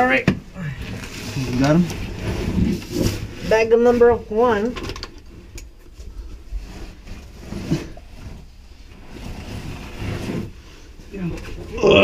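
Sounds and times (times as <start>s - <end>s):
clothing and bag scraping on rock: 1.0s - 4.5s, 6.1s - 10.9s.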